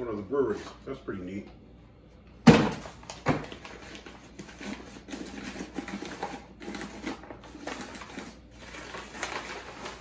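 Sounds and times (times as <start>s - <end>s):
heavy paper rustling and crinkling: 2.8s - 10.0s.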